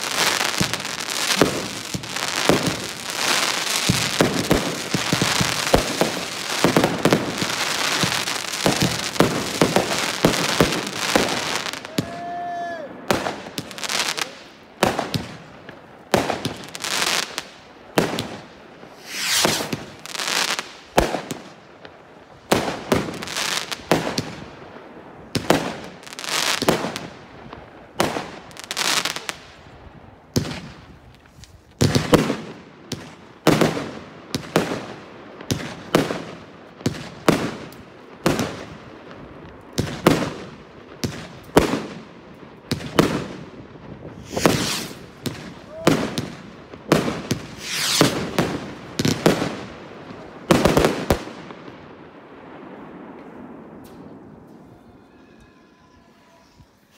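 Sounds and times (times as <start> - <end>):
firework shells bursting: 44.1 - 46.3, 47.2 - 49.3.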